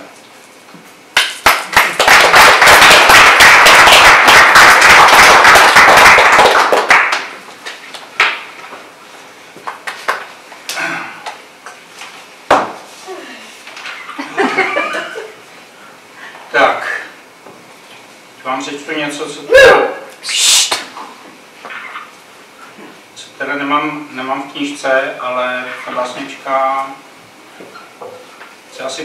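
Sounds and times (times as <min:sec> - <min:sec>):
audience applauding: 0:01.2 - 0:08.4.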